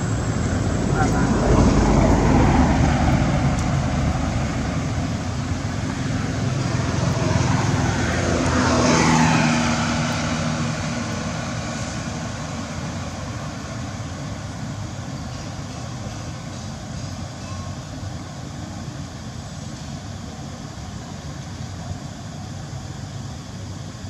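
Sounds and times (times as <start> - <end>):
motor vehicles passing: 0.0 - 17.3.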